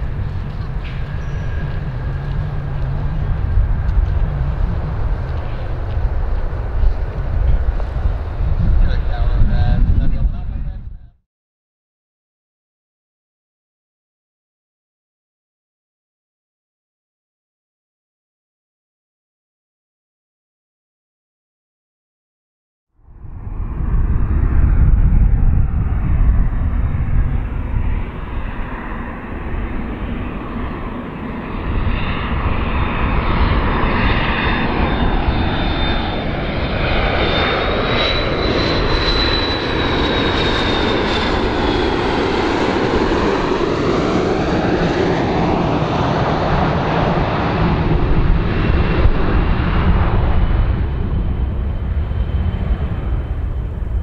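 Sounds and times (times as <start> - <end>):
high jet engine whine: 0.0 - 11.2, 23.0 - 54.0
jet airliner roar: 0.0 - 11.2, 23.0 - 54.0.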